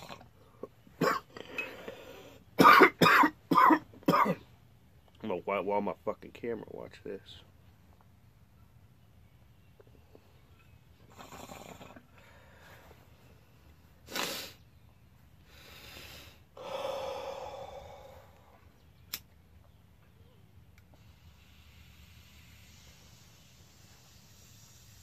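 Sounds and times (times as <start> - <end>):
long exhale: 15.4 - 18.6, 20.9 - 25.0
sharp click: 19.1 - 19.4.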